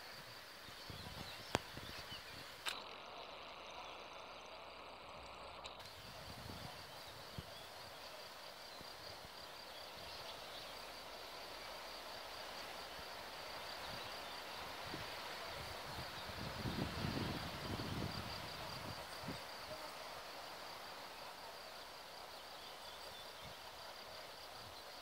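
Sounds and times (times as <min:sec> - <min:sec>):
outdoor hiss: 0:00.0 - 0:25.0.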